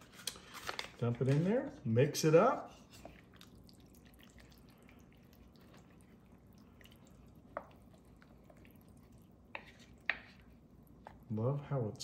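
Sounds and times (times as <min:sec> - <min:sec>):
wooden spoon stirring thick soup: 0:02.3 - 0:11.6.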